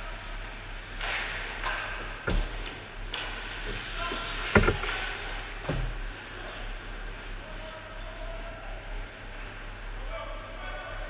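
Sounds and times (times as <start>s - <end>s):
low rink hum: 0.0s - 11.0s
puck and sticks thudding on boards: 1.0s - 6.0s.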